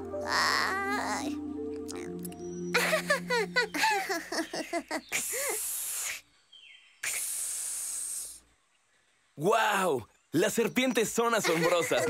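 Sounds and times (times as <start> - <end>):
high cartoon vocal chirps: 0.2 - 6.3, 7.0 - 8.4
cartoon snake hiss: 5.0 - 6.3, 7.0 - 8.5.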